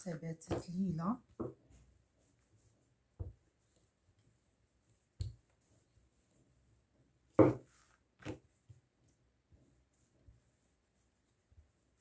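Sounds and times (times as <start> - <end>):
rolling pin knocking on counter: 1.3 - 1.6, 7.4 - 8.4.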